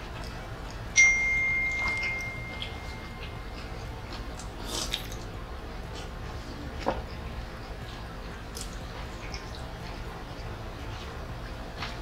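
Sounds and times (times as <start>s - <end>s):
bell-like ding: 1.0s - 3.2s
mouth clicks and chewing: 2.6s - 5.3s, 6.8s - 11.2s.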